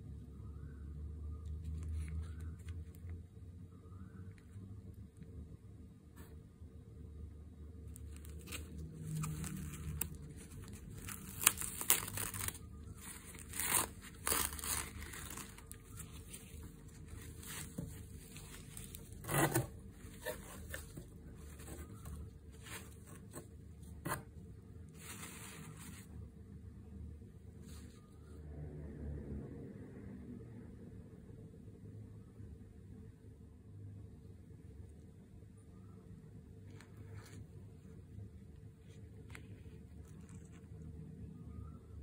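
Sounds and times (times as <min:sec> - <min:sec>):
paper rustling and crinkling: 0:07.9 - 0:24.3, 0:24.9 - 0:26.2, 0:38.8 - 0:40.8.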